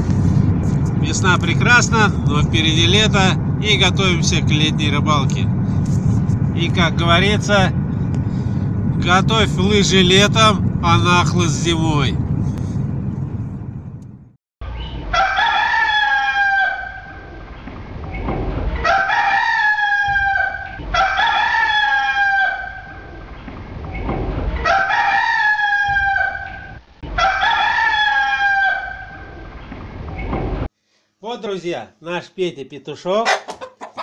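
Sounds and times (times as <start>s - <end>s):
rooster crowing: 14.8s - 17.3s, 18.8s - 23.0s, 24.6s - 29.4s.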